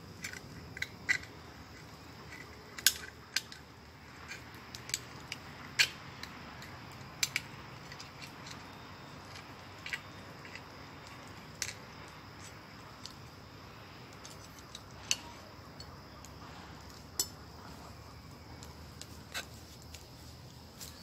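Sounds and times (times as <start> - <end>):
sharp light clicks and clinks: 0.2 - 13.3, 14.1 - 17.5.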